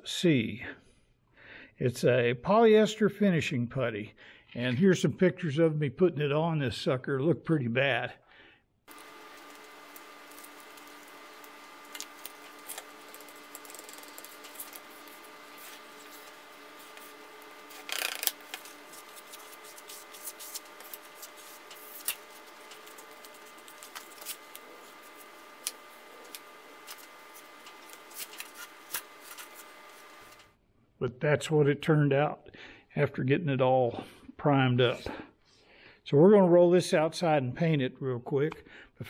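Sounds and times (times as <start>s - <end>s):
plastic spreader scraping putty: 8.9s - 30.4s
steady hum: 8.9s - 30.5s.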